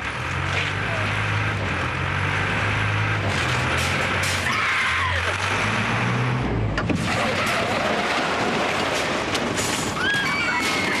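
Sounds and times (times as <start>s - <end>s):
lorry engine rumble: 0.0s - 11.0s.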